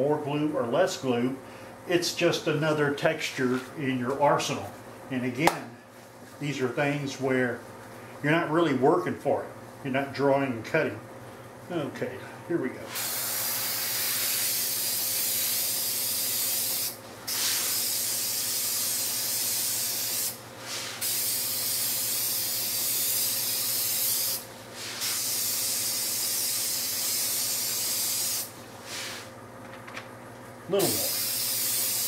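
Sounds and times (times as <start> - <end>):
aerosol can spraying: 12.9 - 29.3, 30.8 - 32.0.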